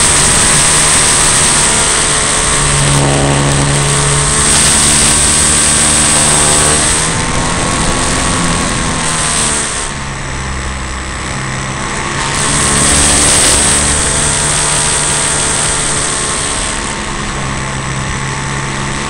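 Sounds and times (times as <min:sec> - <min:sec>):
wind rushing: 0:00.0 - 0:14.4
model plane motor and propeller: 0:00.0 - 0:19.0.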